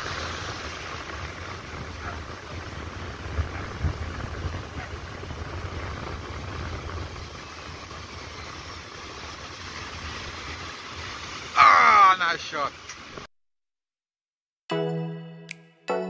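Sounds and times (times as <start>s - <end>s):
wind buffeting microphone: 0.0s - 10.7s
ocean surf breaking: 0.0s - 13.3s.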